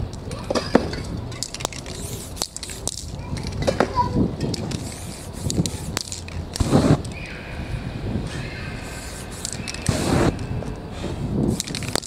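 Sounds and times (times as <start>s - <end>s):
spray paint hissing: 1.3s - 3.6s, 4.4s - 7.4s, 8.2s - 12.0s.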